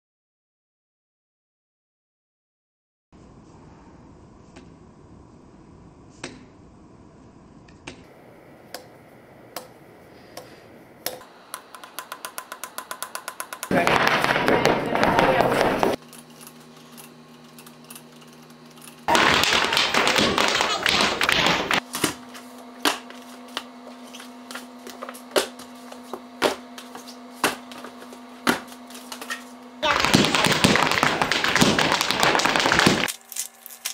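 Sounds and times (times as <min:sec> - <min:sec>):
steady low hum: 0:03.2 - 0:33.9
fingers tapping on paper: 0:19.1 - 0:21.8, 0:29.9 - 0:33.1.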